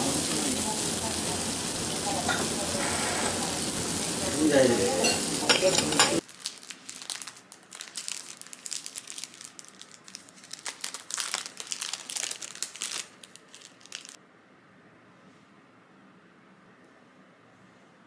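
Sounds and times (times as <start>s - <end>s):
plastic wrapper crinkling: 6.2s - 14.2s.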